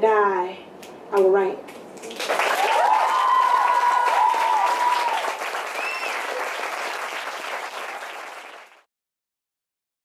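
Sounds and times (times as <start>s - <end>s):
audience applauding: 2.0s - 8.9s
people whooping: 2.2s - 7.0s.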